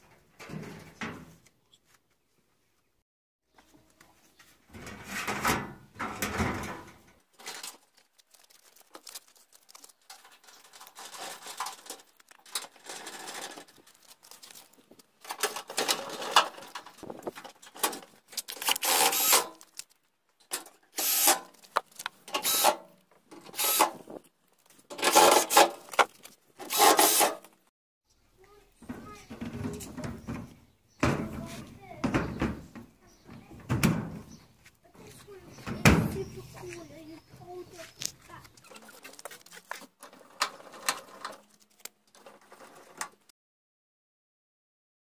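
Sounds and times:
cordless drill driving screws: 18.6s - 19.5s, 21.0s - 21.4s, 22.3s - 22.8s, 23.5s - 24.0s, 26.6s - 27.4s.

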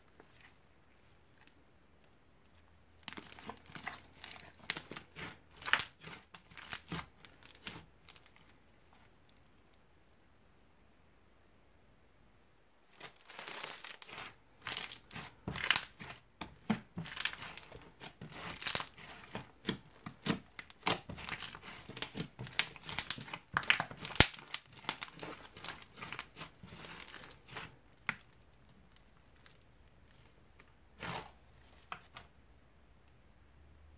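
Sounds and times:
crunchy slime crackling: 2.5s - 9.4s, 12.9s - 32.2s.

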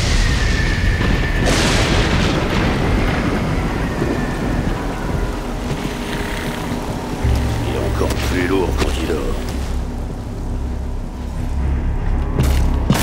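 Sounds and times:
thunder crack rumbling: 0.0s - 10.1s
heavy rain: 0.0s - 13.0s.

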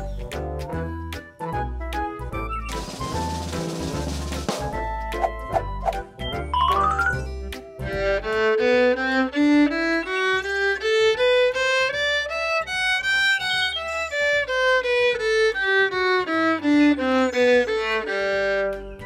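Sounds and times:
violin melody: 6.6s - 19.0s.

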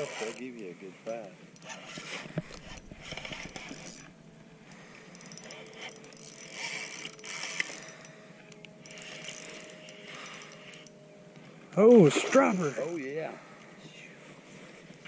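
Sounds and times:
fishing reel whirring and clicking: 0.0s - 11.0s.

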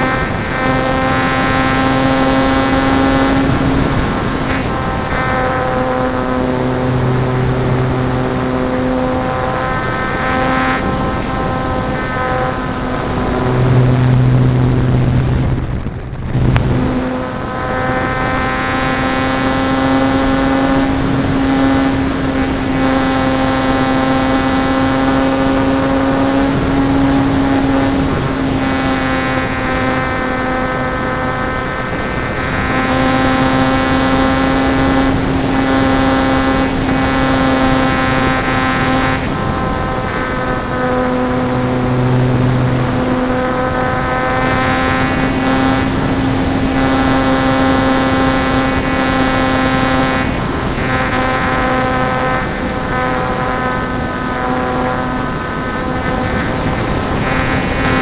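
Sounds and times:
electric motor and propeller: 0.0s - 58.0s
wind rushing over airframe: 2.8s - 18.3s, 37.9s - 46.8s.

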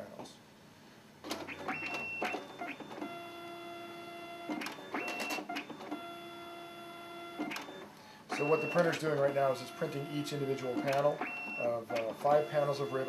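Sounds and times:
printer motor whine: 1.2s - 13.0s
printer mechanism clicking: 10.6s - 11.4s.

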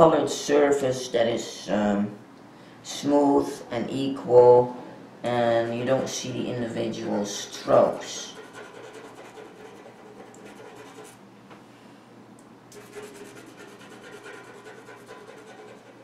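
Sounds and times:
pencil rubbing on paper: 8.0s - 11.2s, 12.8s - 16.0s.

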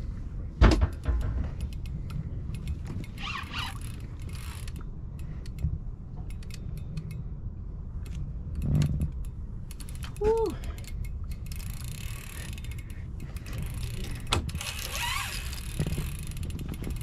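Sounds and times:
steady low rumble: 0.0s - 17.0s
fishing reel clicking: 1.6s - 5.6s, 8.0s - 17.0s.

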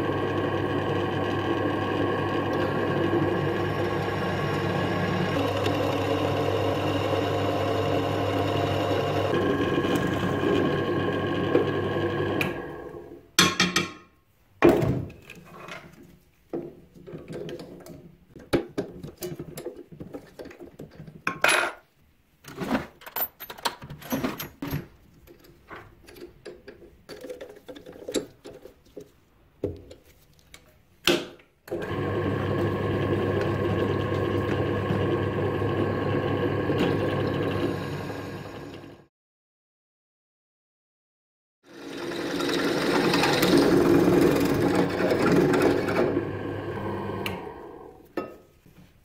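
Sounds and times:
drill spinning down: 0.0s - 13.0s, 31.8s - 39.1s, 41.7s - 48.0s
drill press running: 0.0s - 13.2s, 31.7s - 39.1s, 41.7s - 48.0s.

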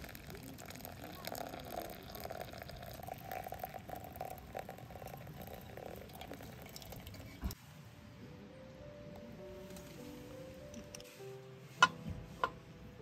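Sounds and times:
water trickling onto coffee grounds: 0.0s - 7.6s.

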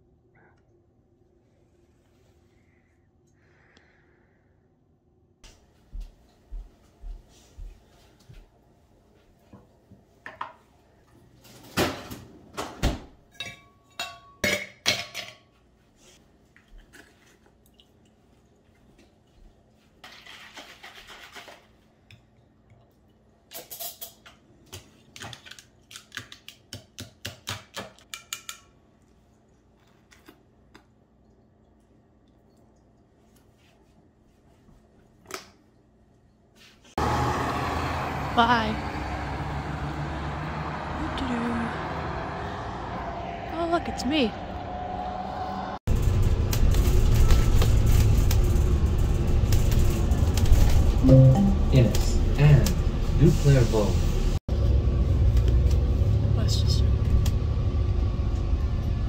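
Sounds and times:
kitchen utensils clinking: 13.3s - 15.5s.

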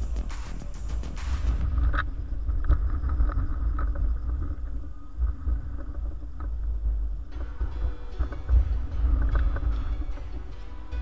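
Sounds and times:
background music: 0.0s - 1.7s, 6.8s - 11.0s
faint steady hum: 0.0s - 11.0s.

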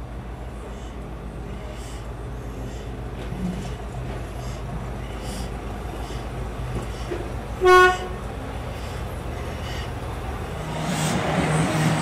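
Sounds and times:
diesel locomotive engine running: 0.0s - 12.0s
locomotive horn toot: 7.6s - 8.2s.

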